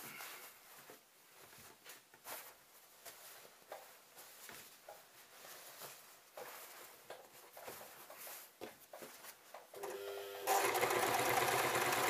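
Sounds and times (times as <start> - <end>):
fabric rustling: 0.0 - 9.7
soft scrapes and taps: 0.1 - 9.7.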